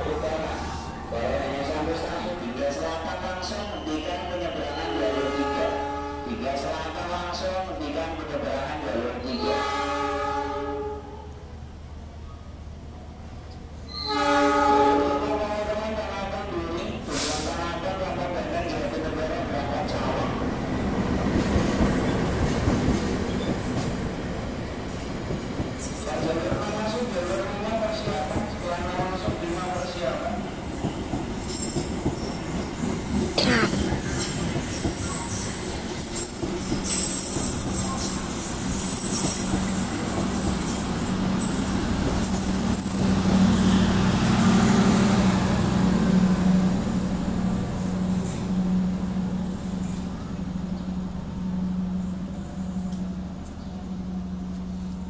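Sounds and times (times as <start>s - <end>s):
diesel locomotive passing: 0.0s - 55.0s
train coaches rolling past: 0.0s - 55.0s
train wheels clattering on rails: 20.6s - 43.3s.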